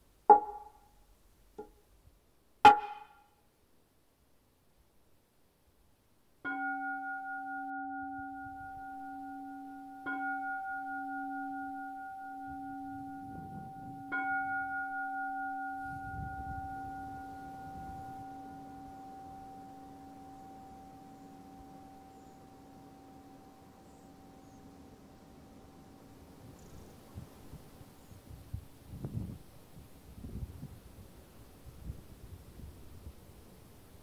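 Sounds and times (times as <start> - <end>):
meditation bell ringing: 6.4 - 26.4.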